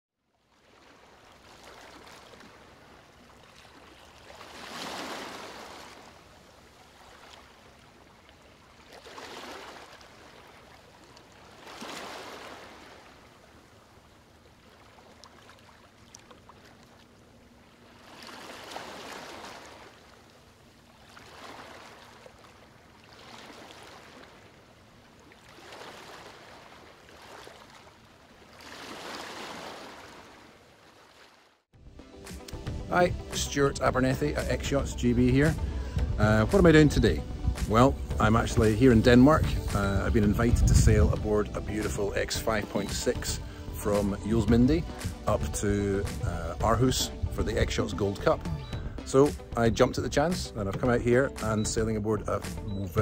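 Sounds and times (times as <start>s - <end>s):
water washing and rushing: 0.6s - 31.6s.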